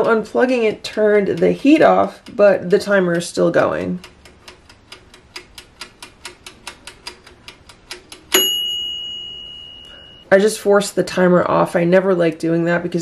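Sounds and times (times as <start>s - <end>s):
timer knob turning: 0.0s - 8.5s
mechanical timer ticking: 0.0s - 10.3s, 11.2s - 13.0s
timer bell ding: 8.3s - 10.3s.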